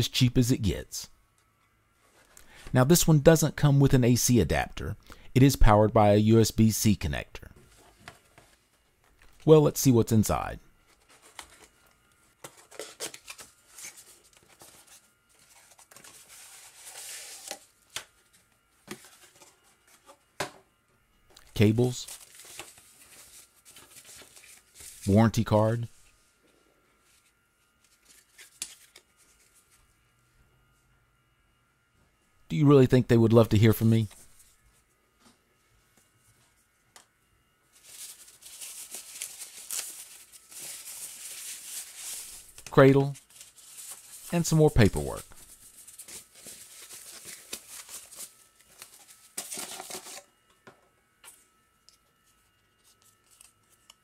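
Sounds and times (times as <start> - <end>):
cardboard rustling: 10.8 - 20.3, 22.0 - 25.2, 37.7 - 50.2.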